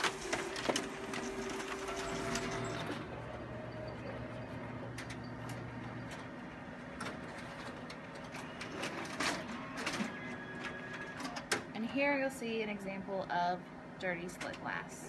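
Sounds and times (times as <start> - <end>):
copier motor hum: 0.0 - 12.6.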